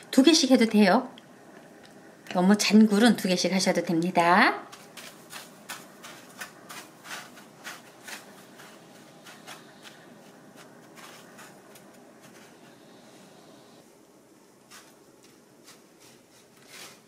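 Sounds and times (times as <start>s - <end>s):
breadcrumbs crackling and rustling: 4.6s - 13.8s, 14.5s - 17.0s.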